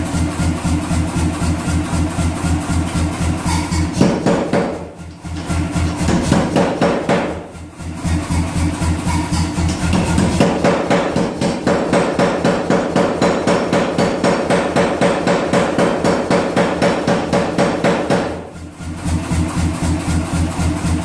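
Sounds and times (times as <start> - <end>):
power hammer running: 2.8 - 19.4
power hammer striking steel: 3.5 - 7.5, 8.1 - 18.5.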